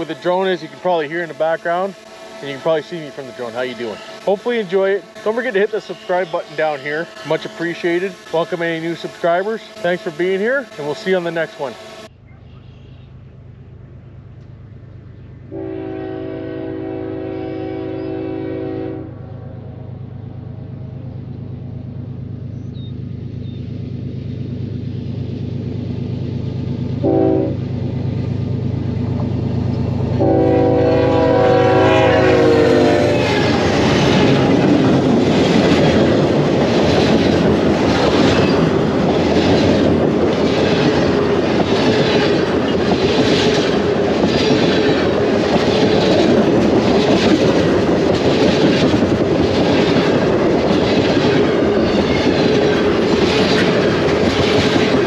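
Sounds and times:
train horn blasts: 0.0 - 12.1, 15.5 - 19.8, 27.0 - 27.6, 30.1 - 34.6
train cars rumbling past: 0.0 - 55.0
rhythmic clickety-clack of wheels: 33.2 - 55.0.

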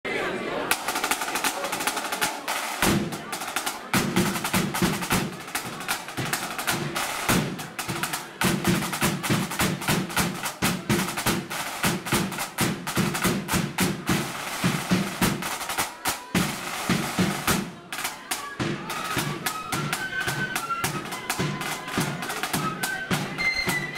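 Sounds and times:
snare drums with rolls: 0.6 - 23.9
bass drum: 2.8 - 3.2.

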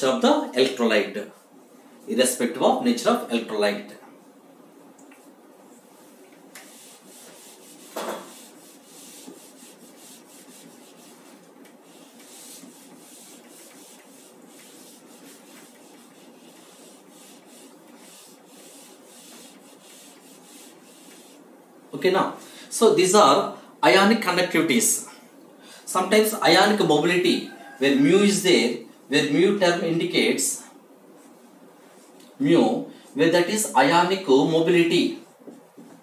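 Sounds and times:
duster scrubbing whiteboard: 5.9 - 21.5.

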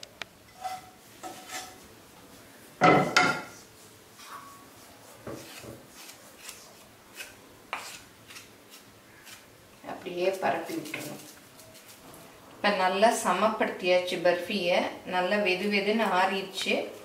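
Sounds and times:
spoon knocking and scraping tray: 0.5 - 1.8, 2.8 - 3.6
wooden spatula scraping pan: 0.5 - 2.0, 3.0 - 8.4.

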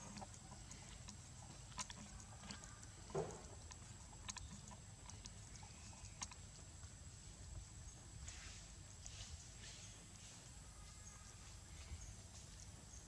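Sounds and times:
monkey chewing corn: 0.0 - 9.7.

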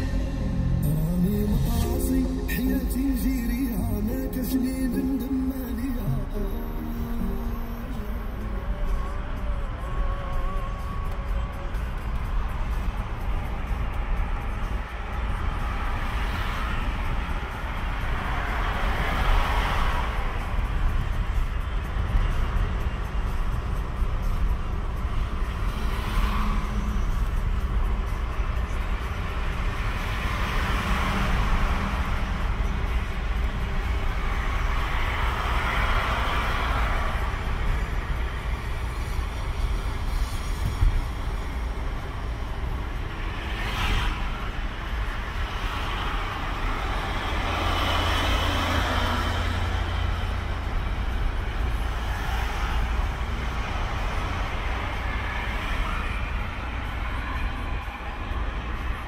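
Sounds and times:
engine and tyre rumble: 0.0 - 59.0
passing traffic: 0.0 - 59.0.

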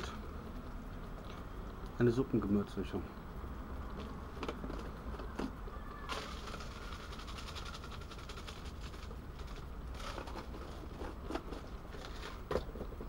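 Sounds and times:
beans simmering in a pan: 0.0 - 13.0
plastic shaker jar rattling: 6.1 - 13.0.

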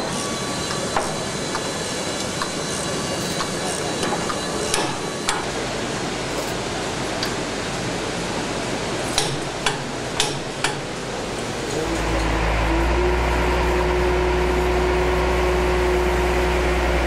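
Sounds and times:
steady hiss of hangar ambience: 0.0 - 17.0
sharp knocks: 9.2 - 10.9.

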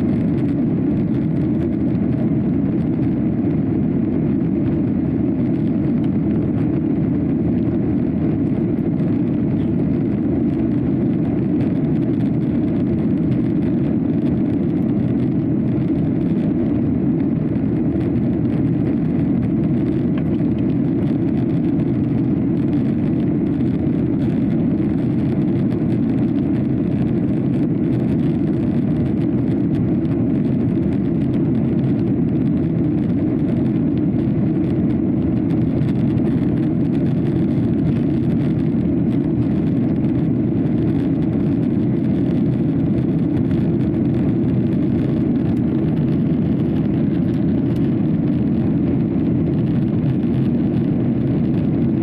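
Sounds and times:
airplane cabin engine and airflow rush: 0.0 - 52.0.

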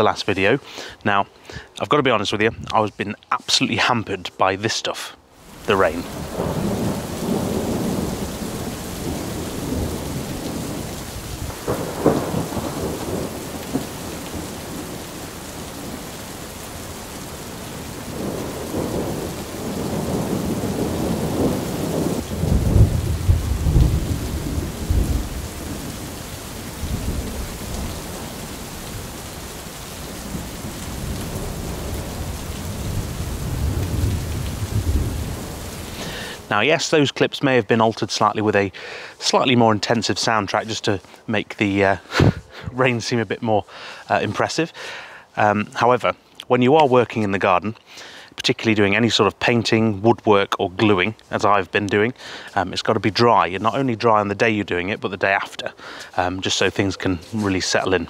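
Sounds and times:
heavy rain falling: 5.3 - 58.0
rolling thunder: 5.6 - 16.2, 16.9 - 36.5.

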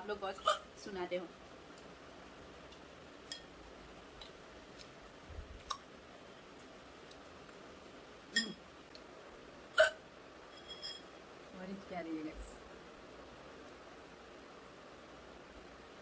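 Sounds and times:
woman hiccuping: 0.4 - 0.7, 8.4 - 8.6, 9.8 - 10.0.

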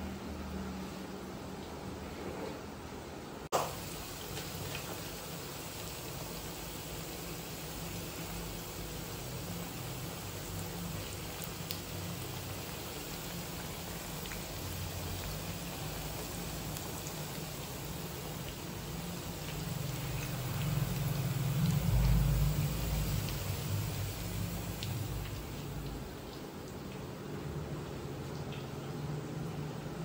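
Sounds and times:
food sizzling in hot oil: 3.6 - 26.4.

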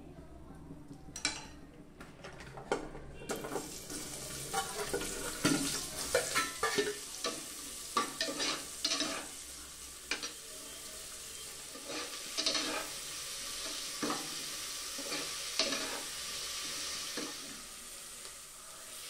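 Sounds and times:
oil sizzling: 3.3 - 19.0
metal spoon scraping a pot: 8.0 - 9.4, 11.7 - 13.0, 15.0 - 16.1.

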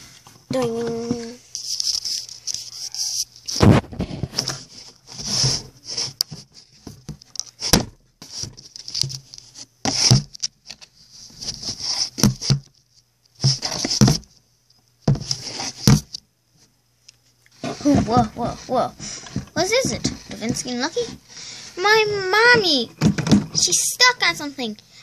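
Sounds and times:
toy horses scraping on cardboard: 4.2 - 6.2, 15.2 - 15.9, 17.6 - 21.2.

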